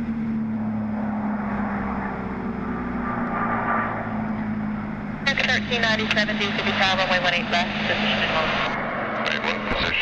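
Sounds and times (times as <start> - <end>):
rush of air: 1.0 - 4.2.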